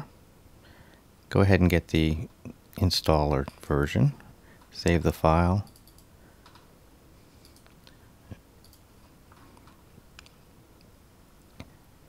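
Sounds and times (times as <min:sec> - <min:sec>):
computer mouse clicks: 0:05.7 - 0:06.7, 0:07.4 - 0:08.0, 0:08.6 - 0:10.9
small ticks: 0:05.7 - 0:06.7, 0:07.4 - 0:08.0, 0:08.6 - 0:08.9.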